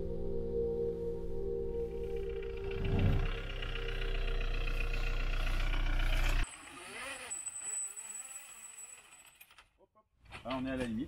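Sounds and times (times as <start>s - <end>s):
diesel van engine running: 1.7s - 6.4s.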